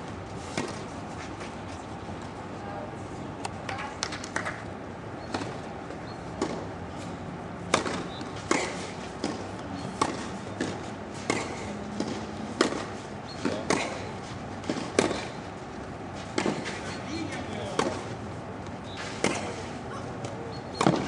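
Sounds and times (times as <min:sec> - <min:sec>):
tennis ball struck with rackets: 0:06.4 - 0:06.7, 0:07.6 - 0:15.4, 0:16.3 - 0:17.0, 0:17.6 - 0:18.1, 0:20.2 - 0:21.0
ball bouncing on court: 0:20.2 - 0:21.0.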